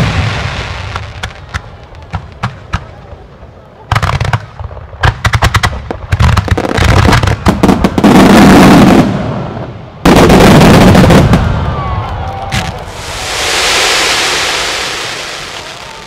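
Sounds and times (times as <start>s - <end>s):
fireworks bangs and crackle: 0.0s - 16.0s
loud firework shell burst: 12.8s - 16.0s.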